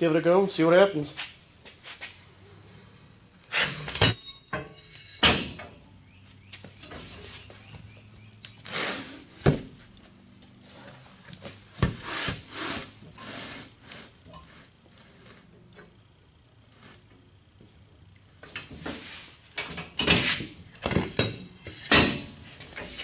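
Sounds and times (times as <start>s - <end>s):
short high squeak: 3.5s - 5.2s
metal clanks: 3.5s - 5.8s, 19.5s - 23.0s
tire knocks and scuffs: 5.3s - 15.5s.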